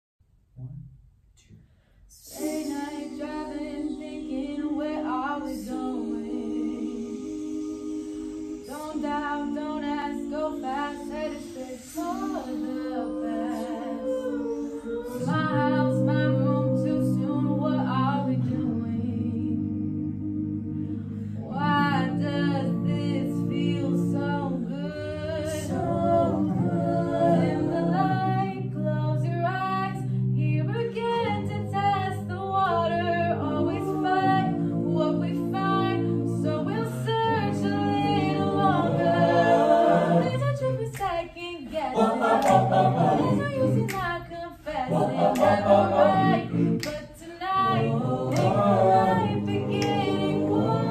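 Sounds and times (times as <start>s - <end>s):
group singing in close harmony: 2.1s - 50.9s.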